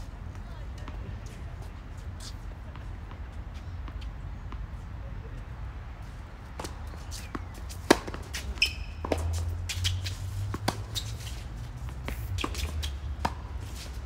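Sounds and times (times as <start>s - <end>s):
shoe squeak on court: 8.3s - 11.3s.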